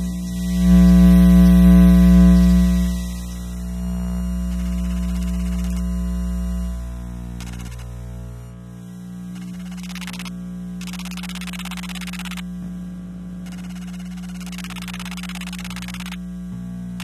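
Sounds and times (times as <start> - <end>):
electrical interference buzz: 0.0 - 17.0
fast low pulsing: 0.0 - 17.0
harsh bursts of ticking hiss: 13.4 - 16.2.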